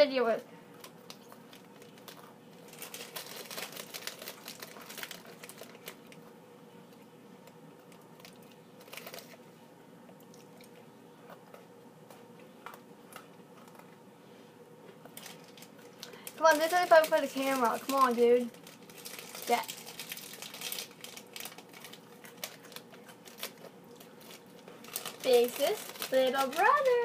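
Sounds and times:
crunching and chewing biscuit: 0.7 - 9.5, 10.1 - 14.1, 14.8 - 27.0
plastic wrapper crinkling: 0.8 - 6.2, 7.4 - 9.4, 15.0 - 27.0.

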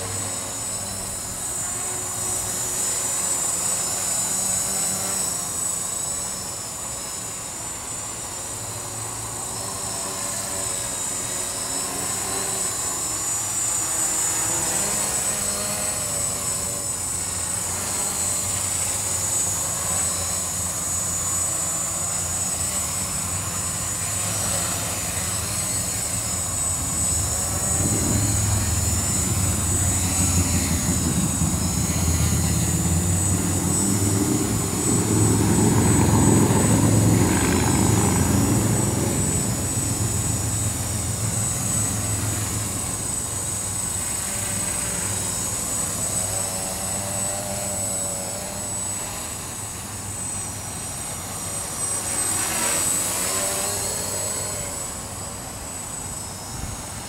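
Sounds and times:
quadcopter propellers whining: 0.0 - 57.0
wind buffeting microphone: 26.6 - 42.0.

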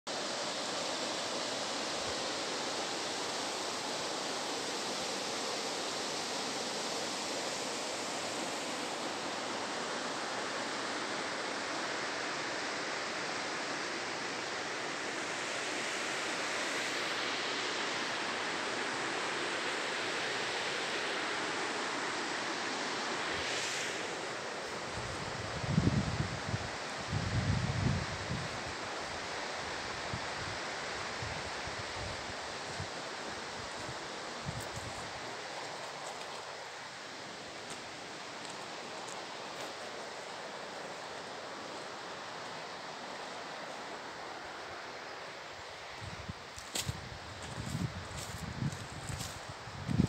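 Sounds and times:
river rapids rushing: 0.1 - 25.5, 28.6 - 46.9.

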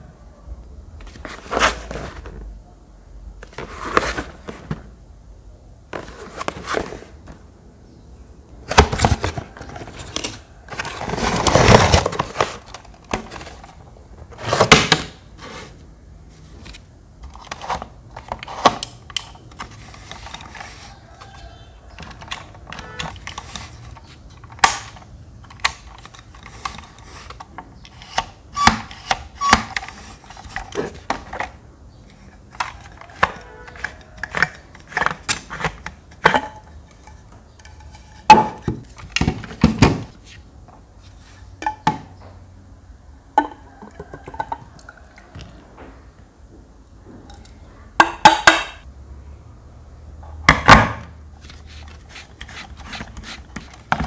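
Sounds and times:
cardboard box scraping and rustling: 1.1 - 2.4, 3.5 - 4.8, 8.7 - 13.7.

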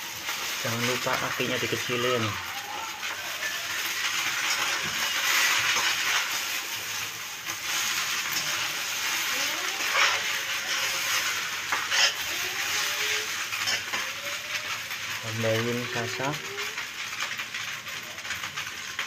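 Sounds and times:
noodles sizzling in a wok: 0.0 - 19.0
metal utensil scraping a wok: 3.8 - 14.2.

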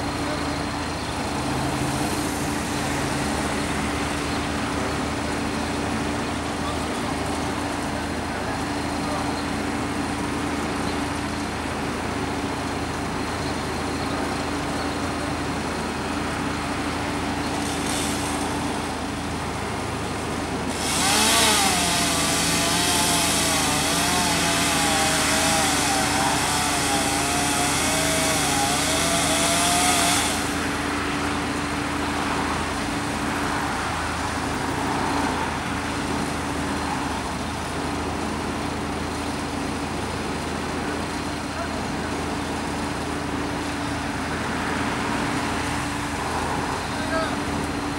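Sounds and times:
chainsaw revving: 20.7 - 30.8.

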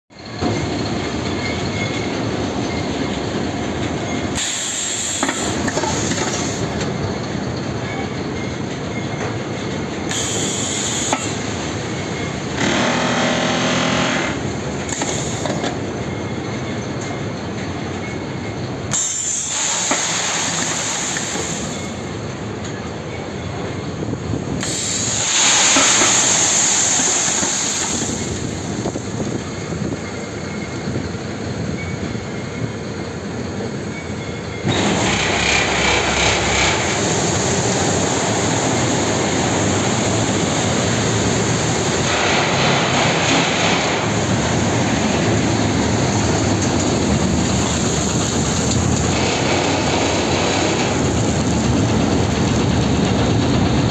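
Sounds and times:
steady machinery noise: 0.1 - 53.9
hissing bursts: 4.3 - 6.8, 10.1 - 15.6, 18.9 - 22.0, 24.6 - 29.2, 34.6 - 53.6.

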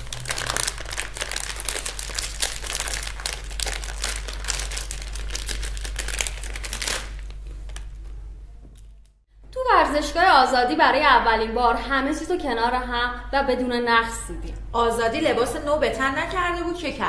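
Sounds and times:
wrappers tearing and crinkling: 0.0 - 8.1.

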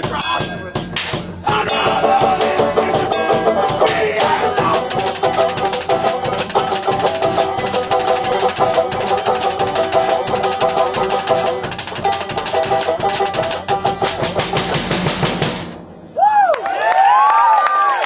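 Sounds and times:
live band playing fast music: 0.0 - 16.2
rapid drumming on drum kit: 0.0 - 16.2
banjo picking: 1.5 - 15.9.

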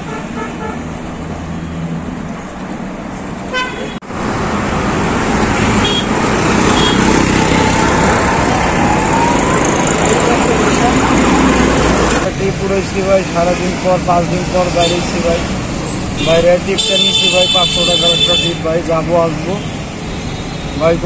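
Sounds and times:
city road traffic: 0.0 - 21.0
motorbikes passing: 0.0 - 21.0
car horn toots: 3.5 - 4.0, 5.8 - 6.1, 6.7 - 7.1, 16.2 - 18.6.

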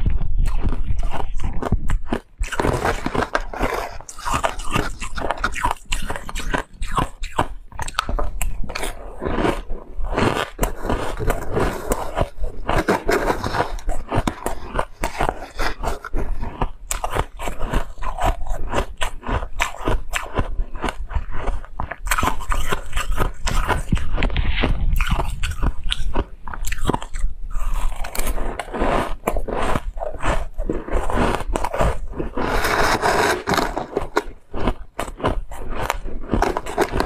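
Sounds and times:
ice crunching being chewed: 0.0 - 37.0
metal spoon scraping ice: 27.0 - 37.0.

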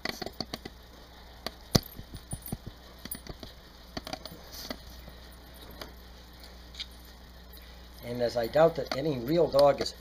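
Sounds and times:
dog harness buckle clicking and jingling: 1.8 - 3.4.

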